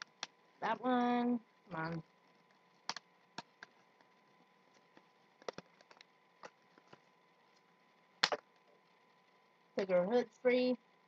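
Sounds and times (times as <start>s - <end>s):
hands handling cardboard and plastic: 2.3s - 8.6s.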